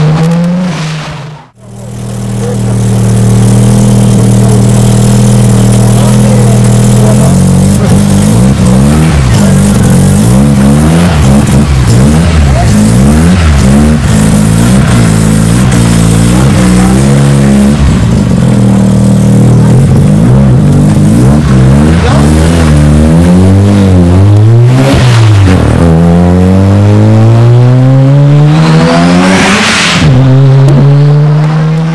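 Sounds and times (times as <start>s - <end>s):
rotary engine revving: 0.0s - 31.9s.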